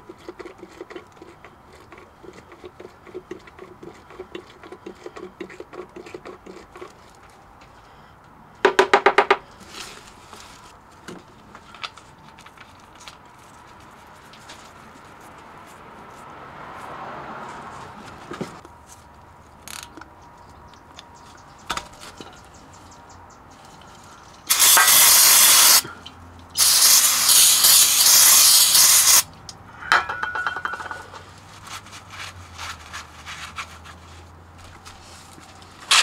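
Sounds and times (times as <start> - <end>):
aerosol spray can hissing: 24.5 - 25.8, 26.6 - 29.2.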